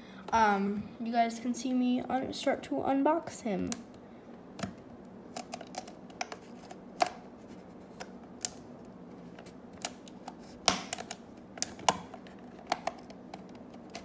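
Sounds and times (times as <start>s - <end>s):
plastic blister clicks and crackles: 4.6s - 7.2s, 9.3s - 14.0s.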